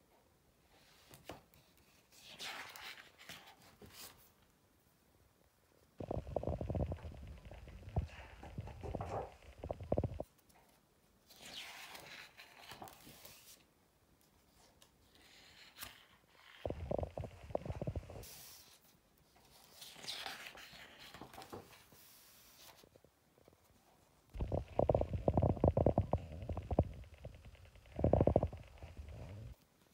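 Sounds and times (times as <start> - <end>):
book pages rustling: 1.0 - 4.4, 6.6 - 13.6, 14.3 - 23.8.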